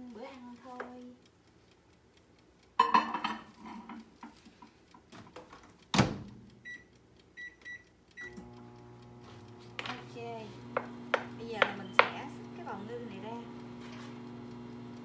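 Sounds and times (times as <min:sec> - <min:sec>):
dish clattering: 0:02.8 - 0:03.8
short keypad beeps: 0:06.6 - 0:08.4.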